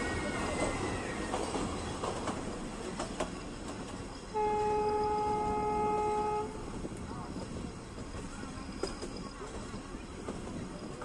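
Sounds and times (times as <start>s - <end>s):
train running along track: 0.0s - 11.0s
locomotive horn blast: 4.3s - 6.6s.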